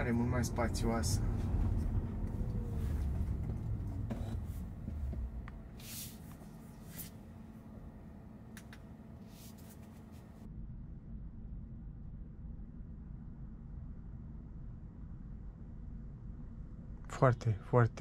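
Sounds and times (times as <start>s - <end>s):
road and tyre rumble: 0.0s - 10.5s
faint whine: 0.0s - 18.0s.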